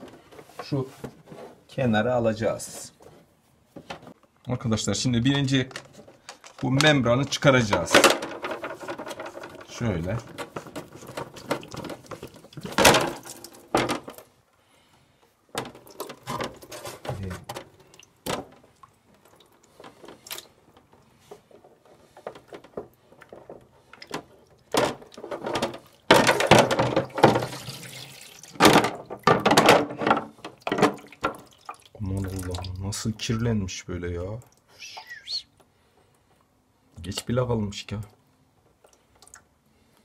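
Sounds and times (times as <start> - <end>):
hard plastic knocks and scrapes: 5.5 - 14.3, 15.5 - 18.7, 19.7 - 27.6, 28.6 - 31.4
water sloshing and dripping: 8.4 - 14.3, 15.5 - 33.2, 38.7 - 39.6.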